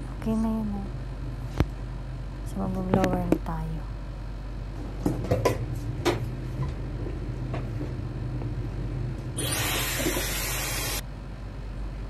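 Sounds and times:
hair dryer blowing: 9.4s - 11.0s.

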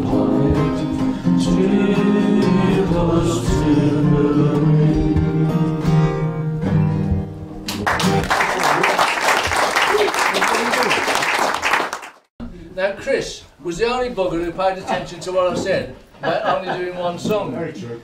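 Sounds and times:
man singing: 0.0s - 5.7s
acoustic guitar: 0.0s - 8.3s
audience applauding: 7.7s - 12.3s.

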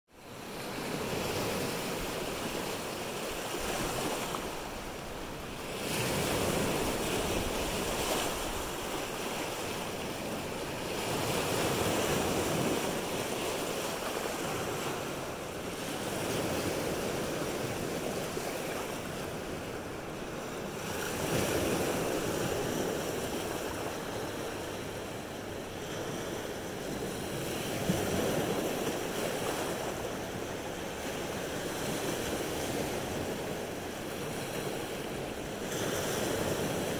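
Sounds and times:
wind: 0.1s - 36.9s
waves breaking on shore: 0.2s - 36.9s.

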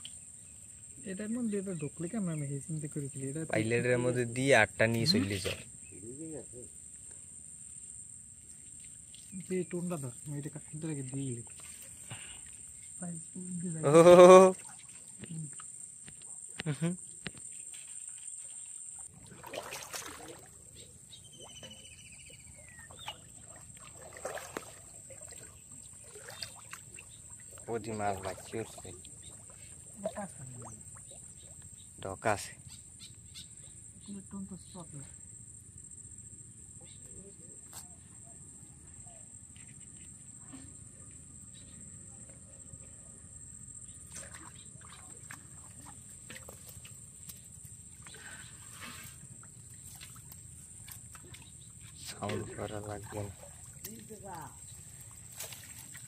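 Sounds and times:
shallow water splashing: 13.9s - 16.0s, 17.5s - 32.0s, 44.0s - 56.0s.

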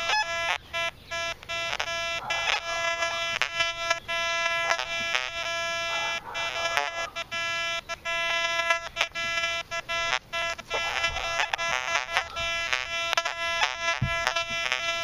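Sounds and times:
metal detector buzzy tone: 0.0s - 15.0s.

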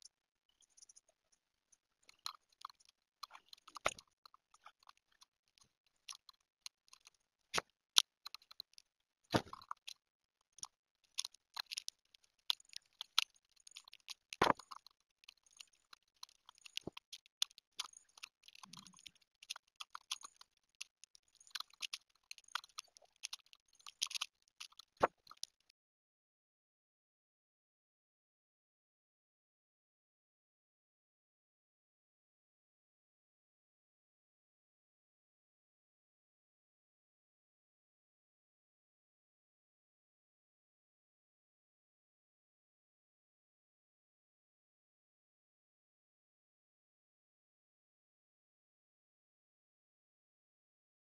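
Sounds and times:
birds cracking seeds: 2.1s - 7.2s, 10.6s - 25.7s.

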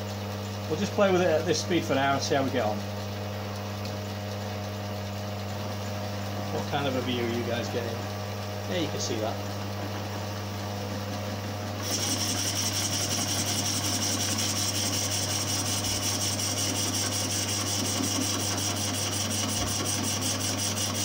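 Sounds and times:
lathe motor hum: 4.5s - 21.0s
lathe cutting metal: 11.8s - 21.0s.

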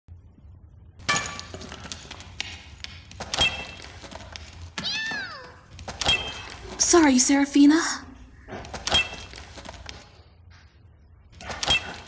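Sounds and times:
cat meowing: 4.8s - 5.6s.

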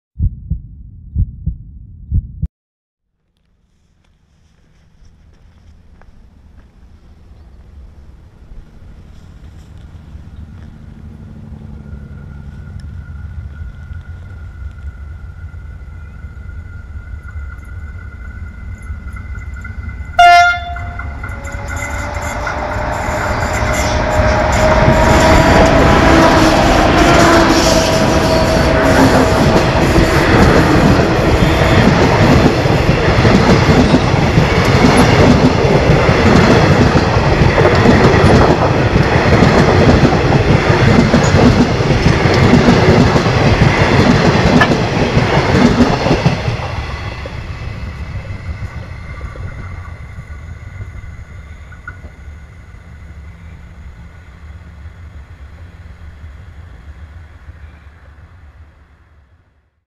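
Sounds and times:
distant train rumble: 3.4s - 59.7s
train wheels clattering over rails: 17.2s - 50.0s.

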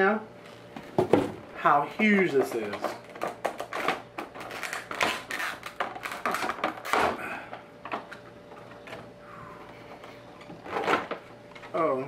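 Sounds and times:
plastic packaging crinkling: 2.1s - 7.1s.

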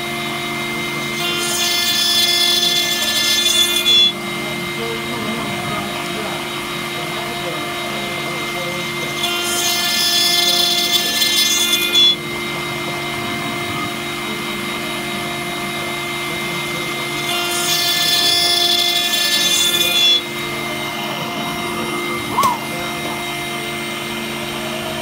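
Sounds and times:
metal cutting noise: 0.0s - 25.0s
milling machine spindle whine: 0.0s - 25.0s.

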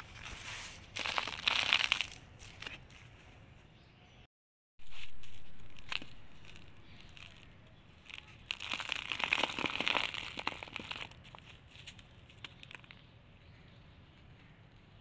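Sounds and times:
sand crushed between fingers: 0.0s - 3.0s, 4.8s - 13.1s.

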